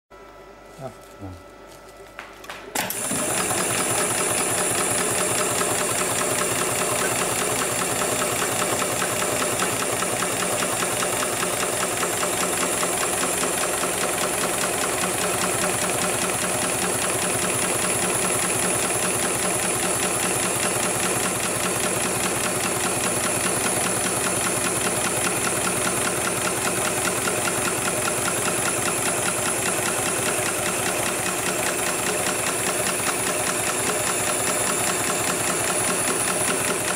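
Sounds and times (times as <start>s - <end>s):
sewing machine high whine: 2.7s - 36.9s
sewing machine needle clatter: 2.8s - 36.9s.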